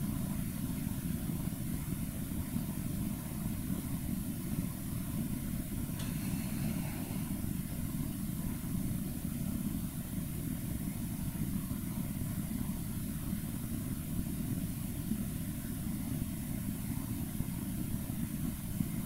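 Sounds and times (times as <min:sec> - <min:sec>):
low background rumble: 0:00.0 - 0:19.0
faint hiss: 0:00.4 - 0:19.0.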